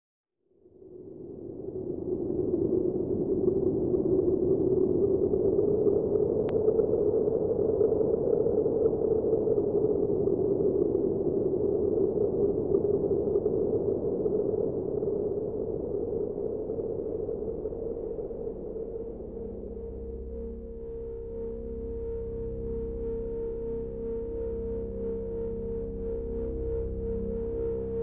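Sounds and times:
synthesized electronic drone: 16.6 - 28.0.

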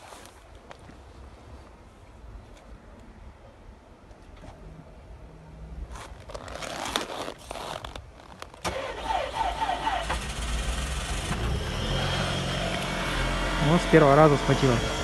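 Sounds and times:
car engine starting and running: 8.6 - 15.0
car starter cranking: 8.6 - 15.0.

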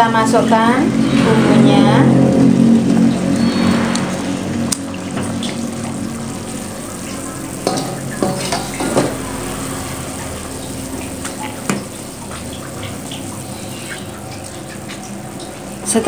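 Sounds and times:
water boiling in a pot: 4.8 - 16.0.

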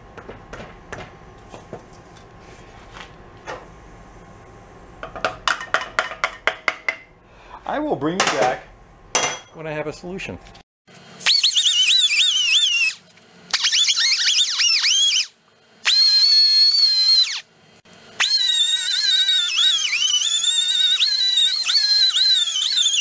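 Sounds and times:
pneumatic die grinder whining: 11.2 - 23.0.

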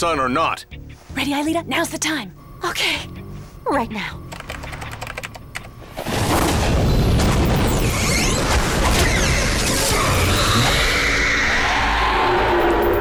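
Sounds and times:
electronic clicks crackling: 3.1 - 8.6.

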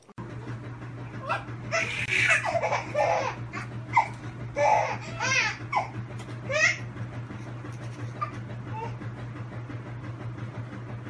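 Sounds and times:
steady low hum: 0.0 - 11.0
baby laughing and squealing: 1.2 - 6.9.

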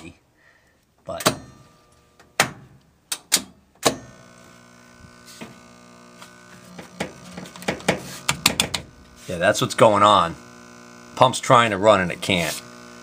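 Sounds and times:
washer drain pump humming: 4.0 - 13.0
quick clicks and taps: 6.8 - 8.8.

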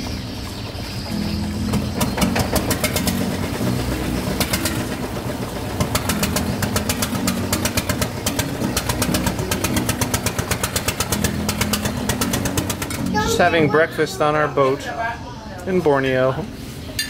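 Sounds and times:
boat engine knocking: 0.0 - 13.5.

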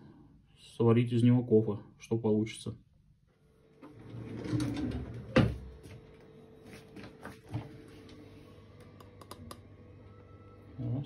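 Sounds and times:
drawer shutting knock: 4.4 - 5.7.

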